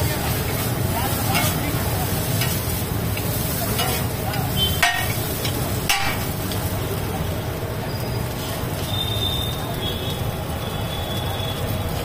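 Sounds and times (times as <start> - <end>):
noodles sizzling on griddle: 0.0 - 12.0
metal spatula clinking on griddle: 1.2 - 6.6.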